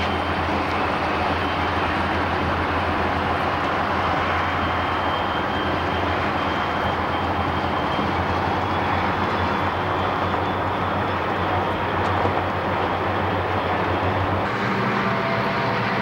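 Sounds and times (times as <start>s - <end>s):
car road rumble: 8.0s - 16.0s.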